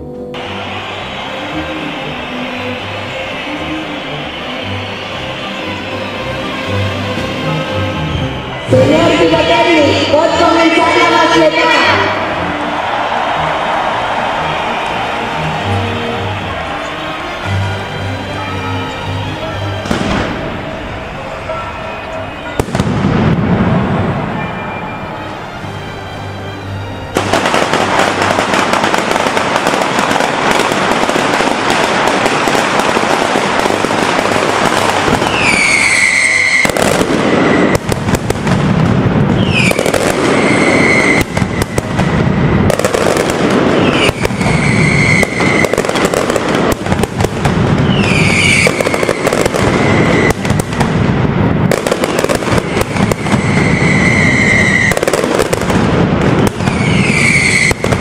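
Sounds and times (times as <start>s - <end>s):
whistling firework: 0.4s - 5.9s, 10.5s - 25.5s, 27.2s - 58.0s
rapid firecracker bangs: 19.8s - 20.8s, 22.5s - 24.5s, 27.2s - 58.0s.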